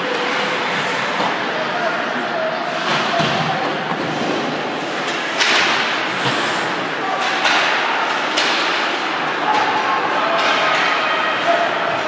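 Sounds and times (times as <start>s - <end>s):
skates scraping ice: 0.0s - 1.8s.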